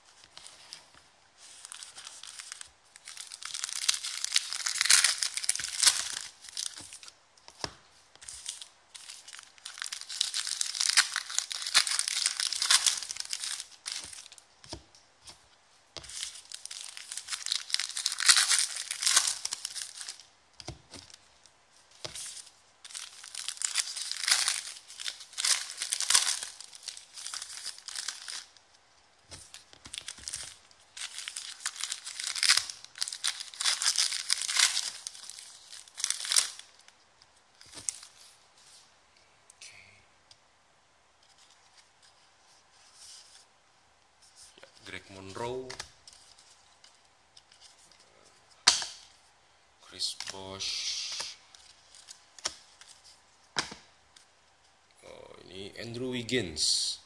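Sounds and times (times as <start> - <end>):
foil wrappers crinkling and tearing: 0.3 - 7.2, 8.3 - 14.5, 16.0 - 20.3, 22.0 - 28.7, 29.3 - 37.0, 37.6 - 38.8, 50.0 - 53.2.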